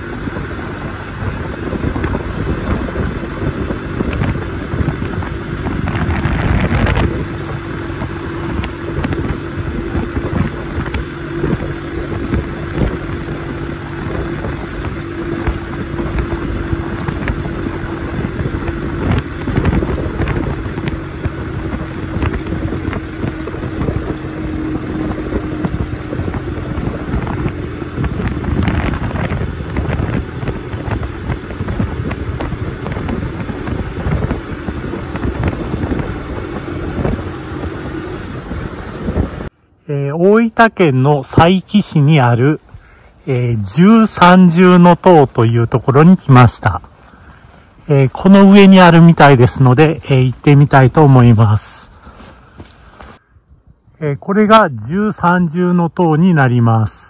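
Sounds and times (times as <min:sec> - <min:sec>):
moped engine humming: 0:00.0 - 0:39.5
riding wind rush: 0:00.0 - 0:57.0
road noise: 0:00.0 - 0:57.0.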